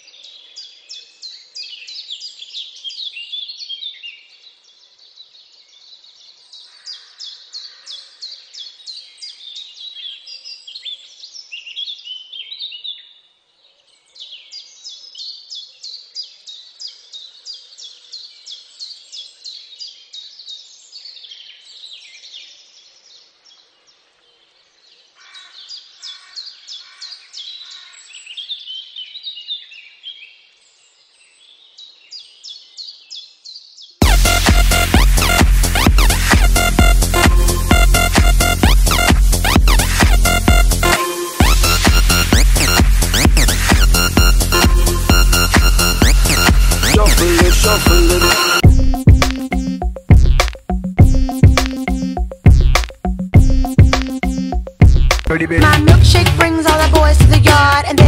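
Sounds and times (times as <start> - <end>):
birds chirping: 34.1 - 56.4.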